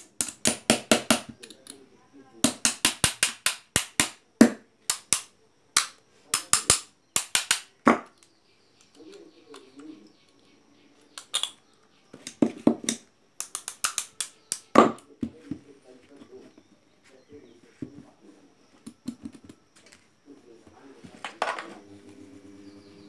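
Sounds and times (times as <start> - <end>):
pliers clicking on metal bolts: 12.2 - 14.7.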